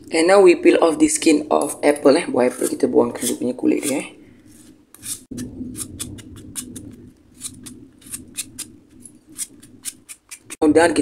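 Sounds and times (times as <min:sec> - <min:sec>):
low steady hum: 0:00.0 - 0:11.0
peeler scraping apple skin: 0:01.6 - 0:10.7.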